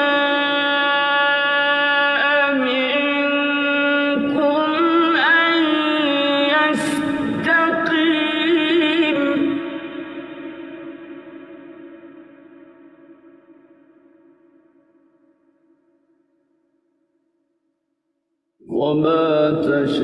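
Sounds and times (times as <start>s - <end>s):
man chanting recitation: 18.6s - 20.0s.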